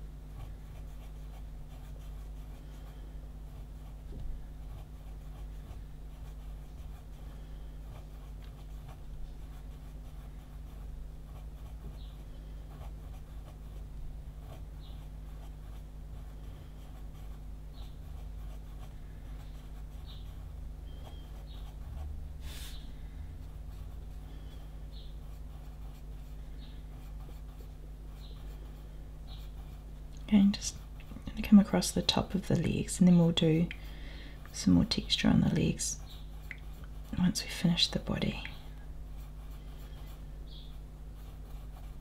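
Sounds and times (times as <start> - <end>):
steady low hum: 0.0 - 42.0
pencil scratching on paper: 0.4 - 2.9, 4.6 - 7.2, 14.4 - 22.8, 25.1 - 29.9, 39.2 - 42.0.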